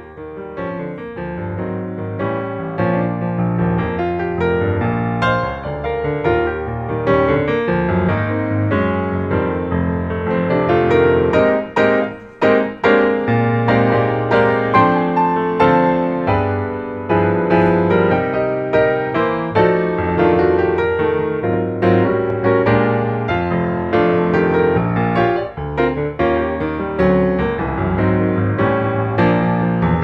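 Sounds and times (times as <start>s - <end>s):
piano music: 0.0s - 30.0s.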